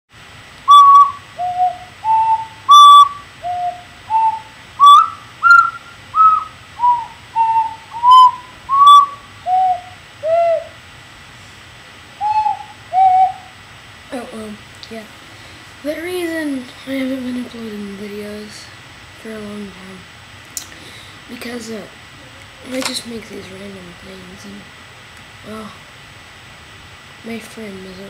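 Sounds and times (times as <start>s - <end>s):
ocarina playing slow tune: 0.7s - 10.7s, 12.2s - 13.4s.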